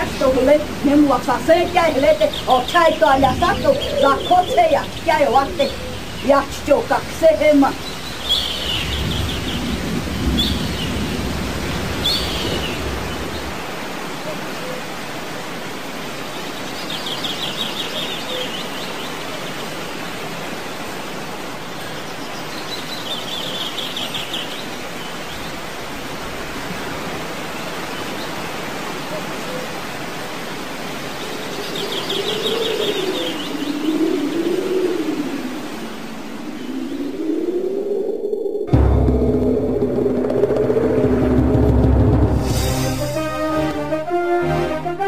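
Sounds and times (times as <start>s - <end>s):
sea surf rushing: 0.0s - 45.0s
rapid high bird trill: 1.5s - 6.6s.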